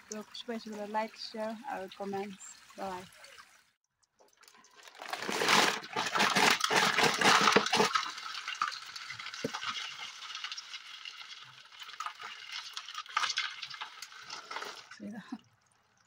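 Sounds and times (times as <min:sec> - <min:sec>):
crabs scrabbling in plastic basin: 0:04.2 - 0:15.2.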